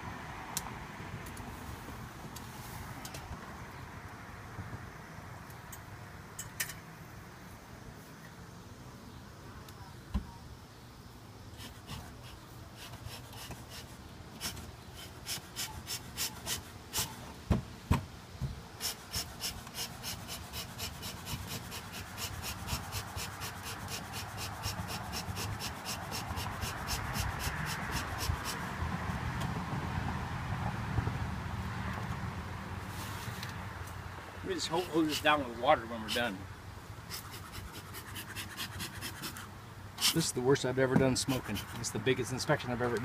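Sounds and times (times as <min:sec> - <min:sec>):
bellows puffs of air: 0:11.6 - 0:17.3, 0:18.8 - 0:28.7, 0:37.0 - 0:40.3.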